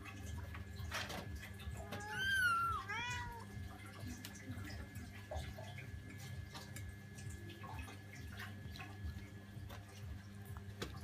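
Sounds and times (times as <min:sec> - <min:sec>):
cat meowing: 0:01.8 - 0:03.5.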